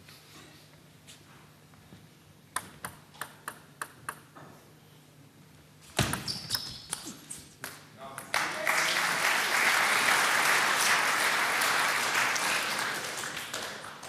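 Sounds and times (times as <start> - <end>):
table tennis ball clicks: 2.5 - 4.4
short high squeak: 6.2 - 7.4.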